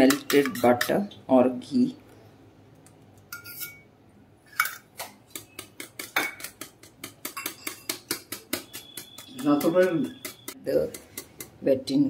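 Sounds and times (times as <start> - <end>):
spoon clinking against steel bowl: 0.0 - 1.0, 3.3 - 3.9, 4.5 - 11.6
whisk beating in glass bowl: 5.2 - 11.6.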